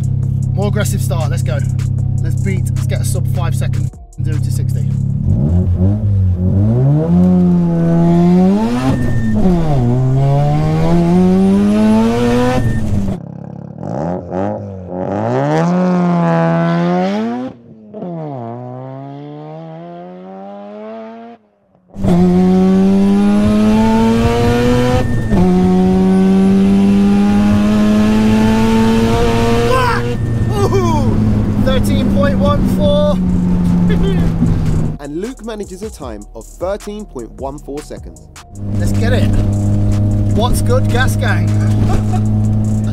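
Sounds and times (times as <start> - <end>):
rotary engine at full throttle: 5.1 - 21.4, 22.0 - 35.0, 38.6 - 42.9.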